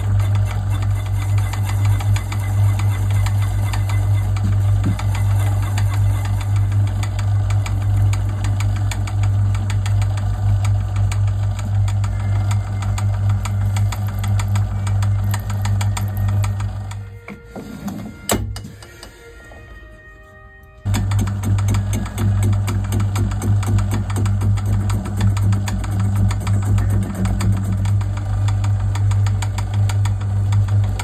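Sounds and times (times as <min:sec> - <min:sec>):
lathe motor hum with ticking: 0:00.0 - 0:19.5, 0:20.8 - 0:31.0
lathe running down: 0:00.0 - 0:19.6, 0:20.9 - 0:31.0.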